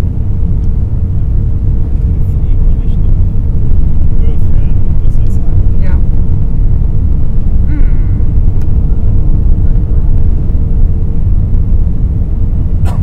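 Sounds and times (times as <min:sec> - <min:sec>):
faint steady hum: 0:00.0 - 0:13.0
jet engines low rumble: 0:00.0 - 0:13.0.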